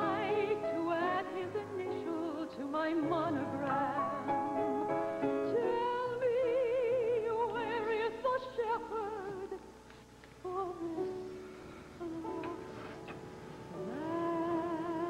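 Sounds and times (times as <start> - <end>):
woman singing operatically: 0.0 - 9.7, 12.0 - 12.7, 13.8 - 15.0.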